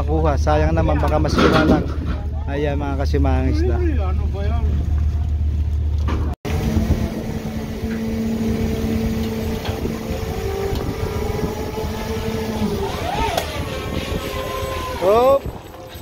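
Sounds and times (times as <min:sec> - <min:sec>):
deep machinery hum: 0:00.0 - 0:16.0
machinery whine at two pitches: 0:06.5 - 0:15.1.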